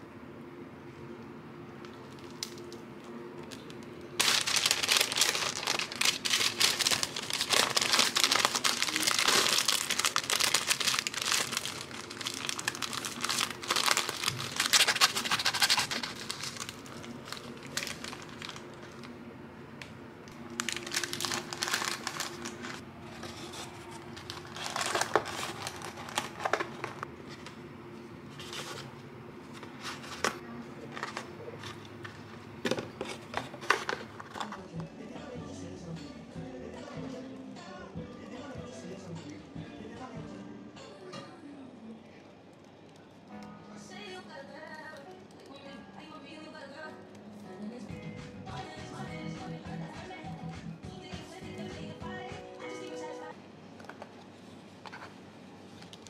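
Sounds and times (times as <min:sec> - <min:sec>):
paper wrapper crinkling: 0:03.4 - 0:19.1, 0:20.3 - 0:27.1, 0:29.5 - 0:34.7.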